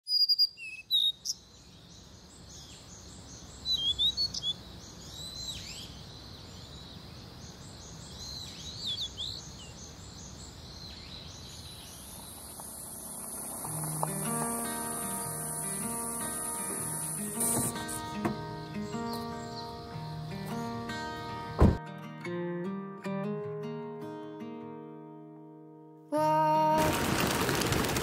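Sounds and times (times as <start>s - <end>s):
birds chirping: 0.1s - 21.8s
repeating high bird call: 13.7s - 18.2s.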